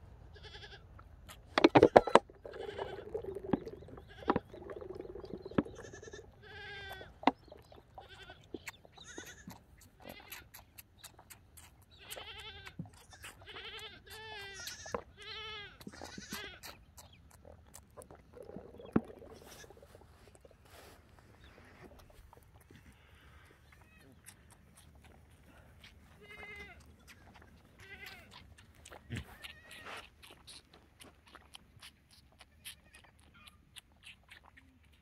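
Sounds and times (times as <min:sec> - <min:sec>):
wet smacking suckling clicks: 0:01.3 - 0:15.0, 0:15.8 - 0:20.5, 0:21.9 - 0:35.0
young alpaca wavering calls: 0:01.7 - 0:10.6, 0:23.0 - 0:30.6.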